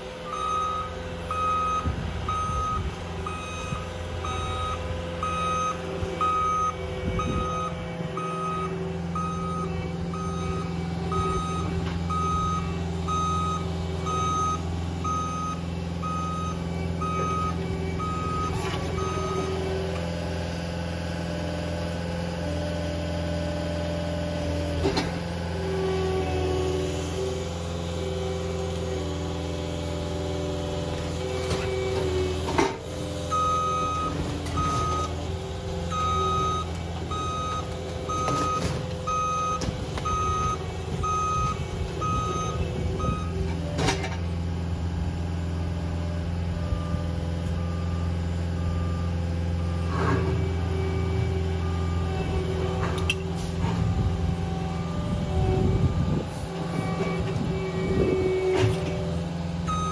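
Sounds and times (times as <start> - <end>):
diesel engine running: 0.0 - 59.9
reverse alarm beeping: 0.2 - 19.6, 35.9 - 43.4, 59.7 - 59.9.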